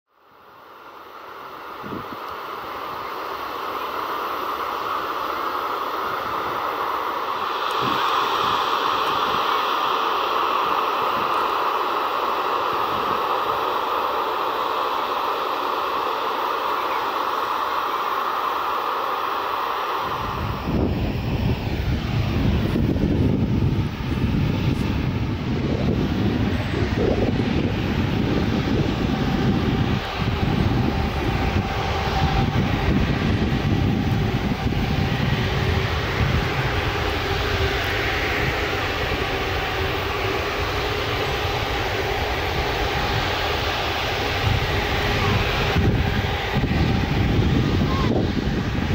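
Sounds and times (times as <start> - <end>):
jet engines rushing: 0.1 - 48.9.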